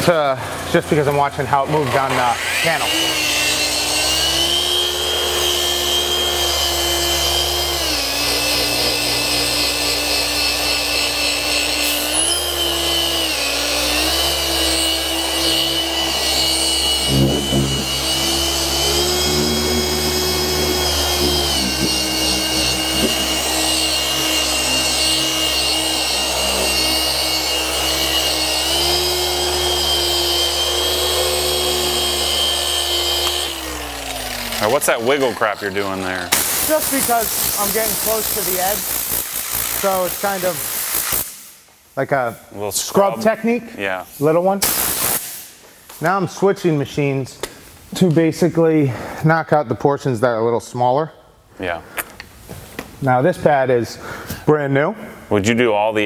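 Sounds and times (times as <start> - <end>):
car polisher whining: 0.0 - 41.5.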